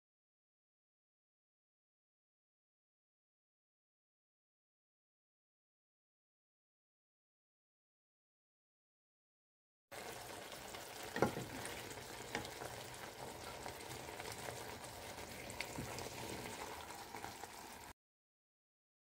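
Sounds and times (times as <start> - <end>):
food simmering in a pan: 9.9 - 18.0
wooden spatula knocking on pan: 11.1 - 12.6.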